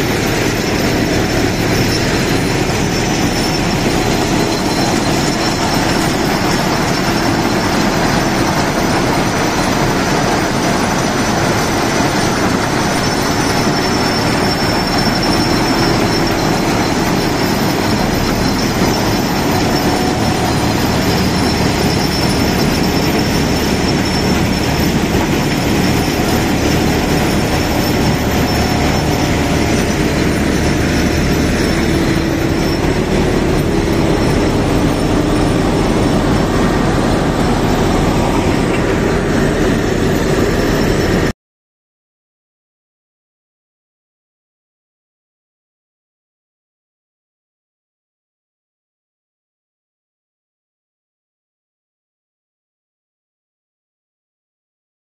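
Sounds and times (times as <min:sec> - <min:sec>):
track machine running: 0:00.0 - 0:41.3.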